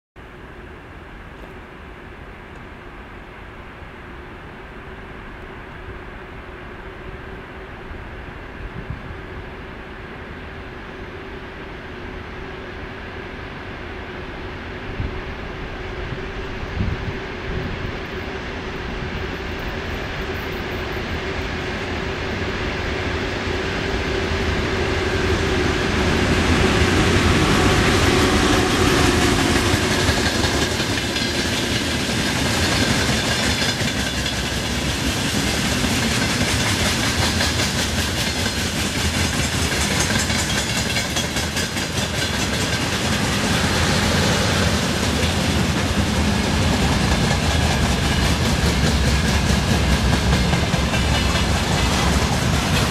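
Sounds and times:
electric locomotive humming: 0.2s - 52.9s
freight wagons rumbling: 23.7s - 52.9s.

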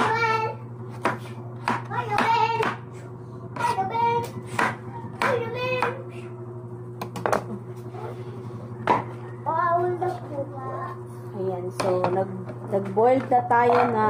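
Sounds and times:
knife chopping on plastic board: 0.9s - 2.9s, 3.6s - 6.0s.

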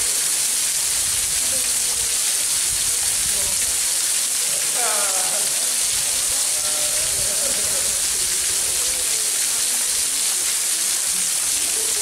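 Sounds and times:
waterfall hiss: 0.0s - 12.0s.

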